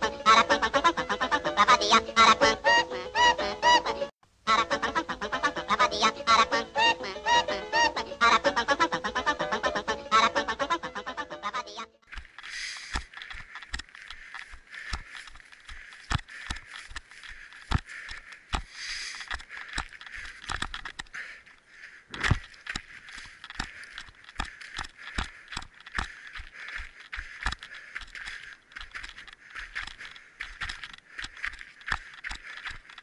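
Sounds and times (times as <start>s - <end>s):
running footsteps on a trail: 12.0s - 33.0s.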